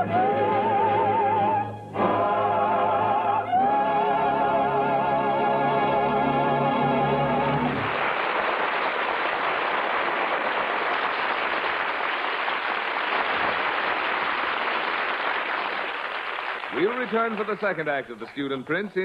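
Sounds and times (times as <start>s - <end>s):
audience applauding: 7.7s - 18.2s.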